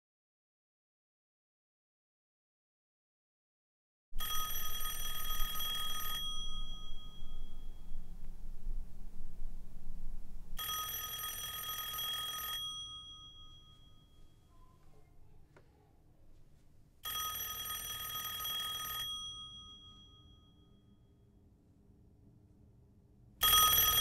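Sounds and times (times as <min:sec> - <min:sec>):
telephone ringing: 0:04.2 - 0:07.8, 0:10.6 - 0:14.3, 0:17.0 - 0:20.7, 0:23.4 - 0:24.0
low hum: 0:04.4 - 0:10.6.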